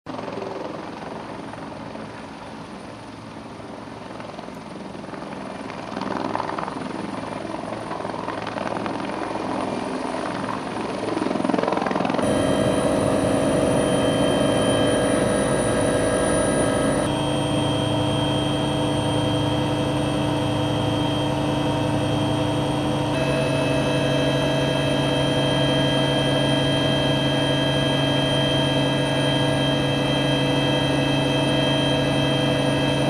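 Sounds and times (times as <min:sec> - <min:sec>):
helicopter cabin drone and whine: 0:00.1 - 0:33.0
helicopter rotor running: 0:00.1 - 0:33.0.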